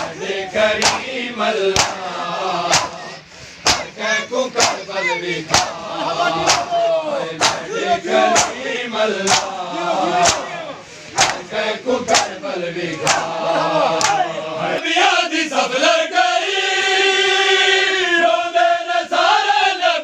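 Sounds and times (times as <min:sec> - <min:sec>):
sharp steady beat: 0:00.0 - 0:12.4
men chanting together: 0:00.0 - 0:20.0.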